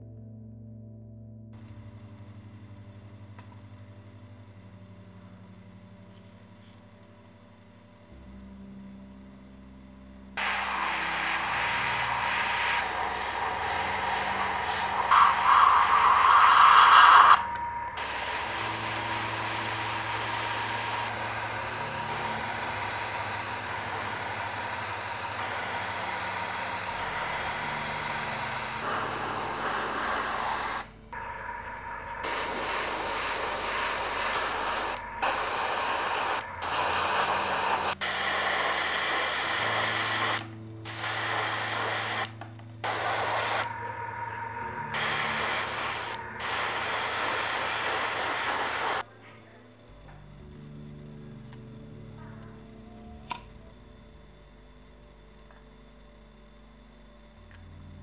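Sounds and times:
airbrush spraying hiss: 10.4s - 31.0s, 31.6s - 49.0s.

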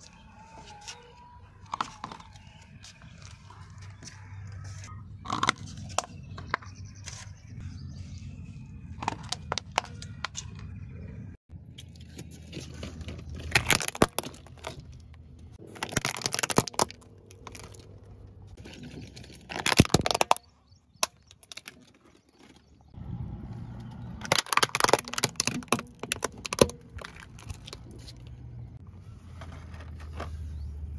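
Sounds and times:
low steady rumble: 4.3s - 15.8s, 22.9s - 30.9s
plastic toys cracking under tyre: 5.2s - 6.7s, 9.0s - 10.6s, 11.8s - 22.9s, 24.0s - 28.4s.

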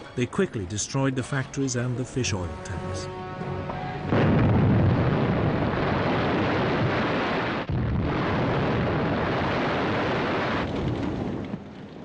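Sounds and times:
heavy explosion rumble: 4.0s - 12.0s.

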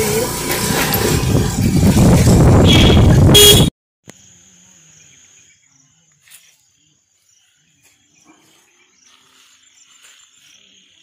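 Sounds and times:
motorbike engine running: 0.0s - 3.7s
wind rushing over microphone: 0.8s - 3.7s
short horn beep: 2.6s - 3.7s.

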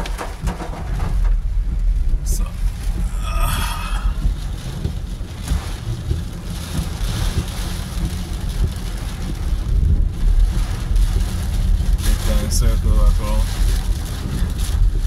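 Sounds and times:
low rumble of moving car: 0.0s - 15.0s
rain beating on car: 0.0s - 15.0s
tyres through standing water: 0.0s - 15.0s.

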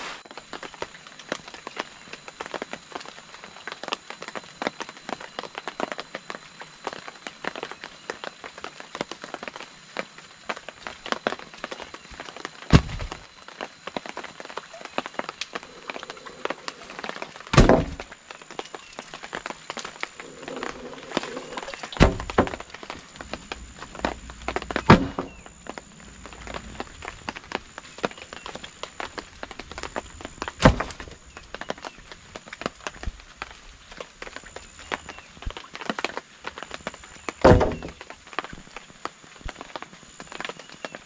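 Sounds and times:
rain pattering on tarp and leaves: 0.0s - 41.0s
wooden planks thudding on ground: 12.7s - 13.2s, 17.5s - 18.1s, 20.3s - 23.4s, 24.0s - 25.4s, 30.6s - 31.1s, 37.4s - 38.1s.

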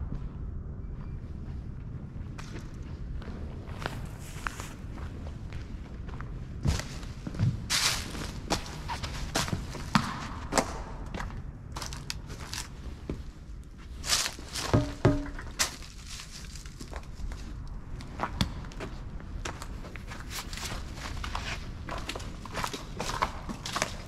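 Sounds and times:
low rumble: 0.0s - 8.8s
footsteps on concrete floor: 0.0s - 15.8s
loud knocks: 14.7s - 15.6s.

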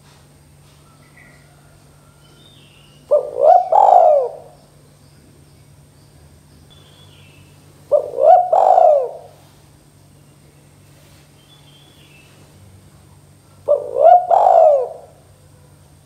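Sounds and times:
dove cooing: 0.9s - 4.8s, 7.8s - 9.5s, 13.6s - 15.9s.

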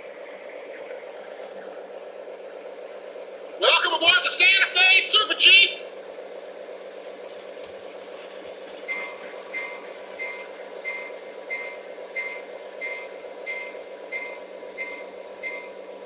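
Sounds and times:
model train hum: 0.0s - 16.0s
electronic reversing alarm beeping: 8.9s - 15.9s.

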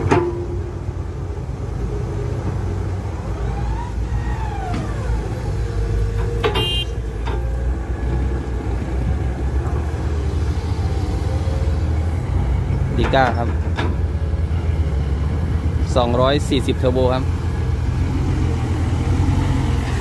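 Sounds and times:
metallic clank: 0.0s - 0.7s
diesel engines rumbling: 0.0s - 20.0s.

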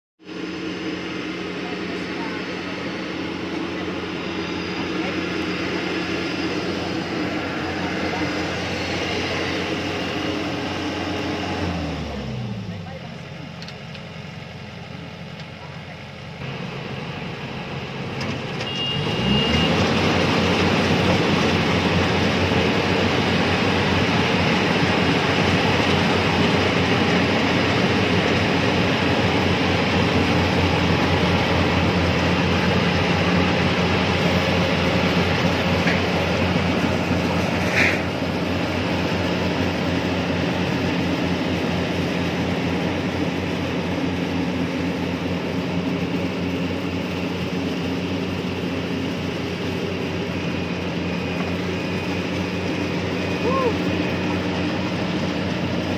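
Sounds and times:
combine harvester diesel drone: 0.2s - 55.9s
cutting and threshing noise: 18.1s - 55.9s.

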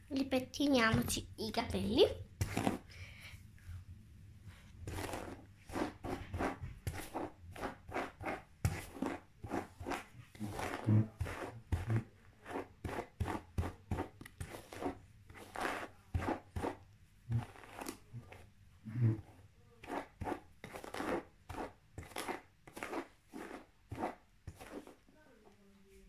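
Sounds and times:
hairbrush strokes through hair: 4.6s - 16.7s, 19.9s - 25.0s.

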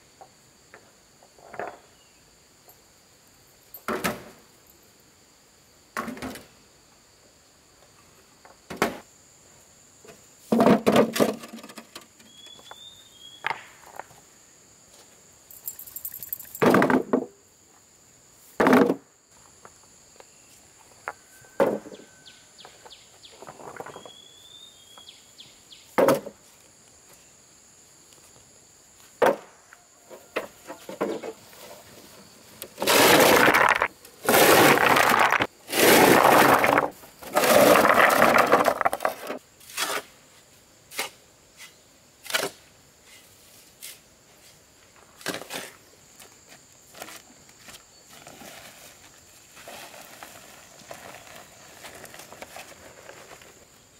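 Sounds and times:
stone scraping: 32.8s - 40.0s.

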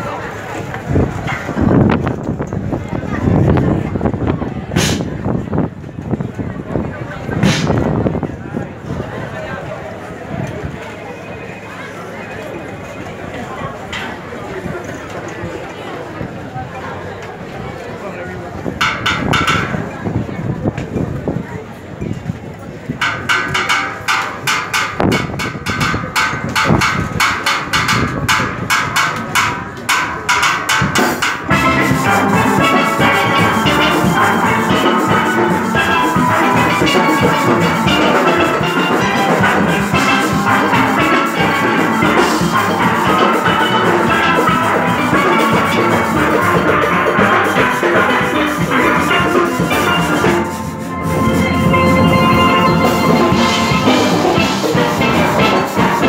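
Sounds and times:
drums and percussion: 4.8s - 6.2s, 7.3s - 8.2s, 18.8s - 21.4s, 22.1s - 56.0s
steel pan band playing: 18.8s - 19.9s, 23.0s - 56.0s.

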